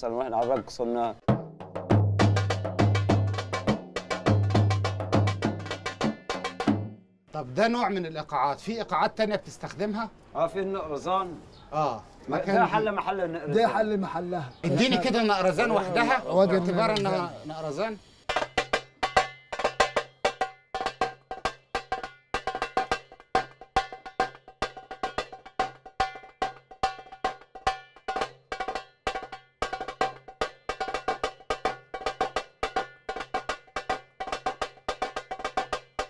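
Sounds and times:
goblet drum beaten with sticks: 0.0 - 7.0, 18.3 - 36.0.

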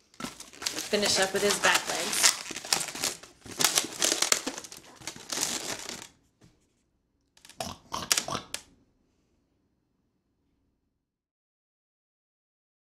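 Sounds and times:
balloons rubbing and squeaking: 0.3 - 6.0.

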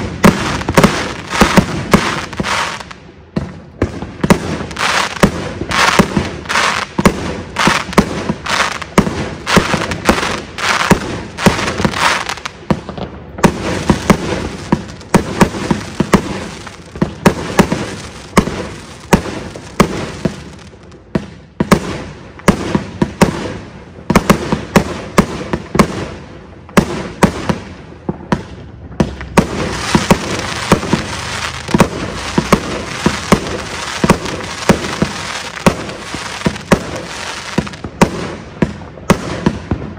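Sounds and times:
dense firework crackling: 0.0 - 3.0, 3.8 - 20.9, 28.4 - 39.9
firework shots and aerial bursts: 0.0 - 39.9.

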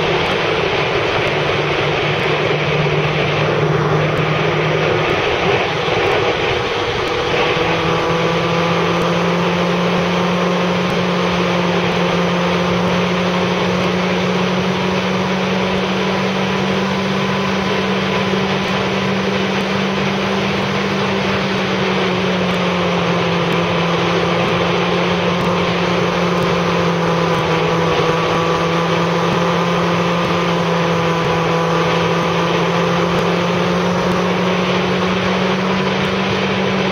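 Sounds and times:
motorcycle engine cruising: 0.0 - 36.9
wind and road noise: 0.0 - 36.9.

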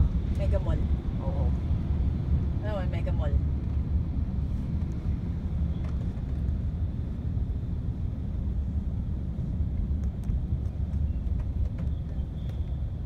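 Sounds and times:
car cabin rumble: 9.3 - 13.0.

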